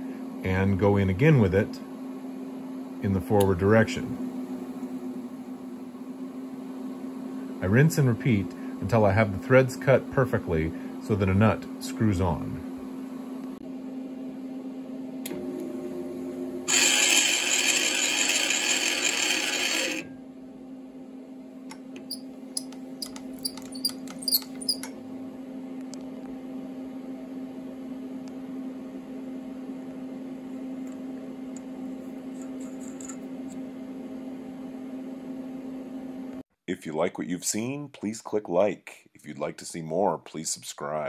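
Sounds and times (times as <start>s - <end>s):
lathe humming: 15.3s - 20.1s.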